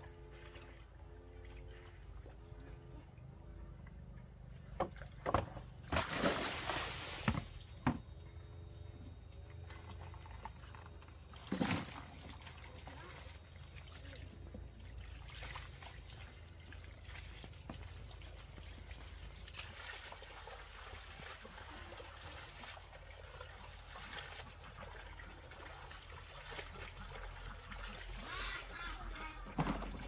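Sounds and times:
faint trickling water: 0.0s - 5.2s, 8.1s - 30.0s
water splashes: 5.8s - 7.8s, 9.6s - 30.0s.

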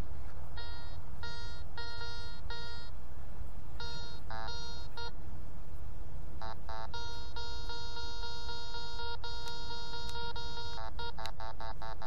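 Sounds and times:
metal detector beeping: 0.6s - 2.9s, 3.8s - 5.2s, 6.4s - 12.0s.

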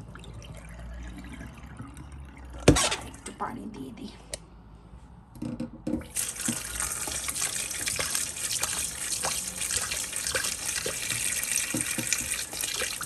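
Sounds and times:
tap water running into bowl: 6.0s - 13.0s.

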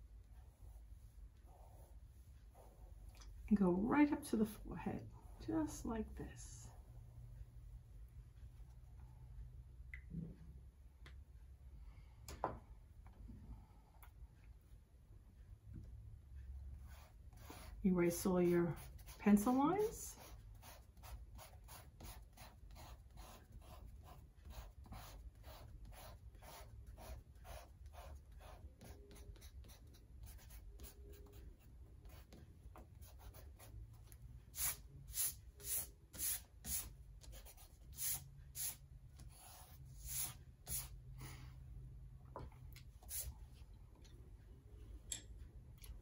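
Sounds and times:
eraser rubbing on paper: 34.5s - 41.0s.

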